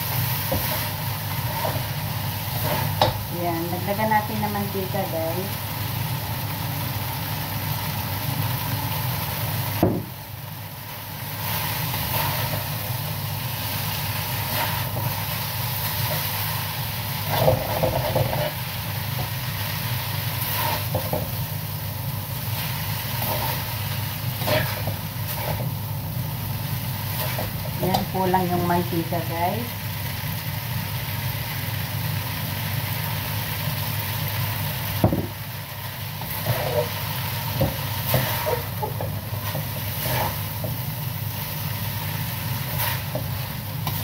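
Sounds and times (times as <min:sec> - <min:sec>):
spatula scraping and knocking wok: 0:00.0 - 0:04.5, 0:11.3 - 0:21.5, 0:22.4 - 0:25.8, 0:26.8 - 0:28.6, 0:36.1 - 0:44.0
noodles sizzling in a wok: 0:00.0 - 0:44.0
range hood fan hum: 0:00.0 - 0:44.0.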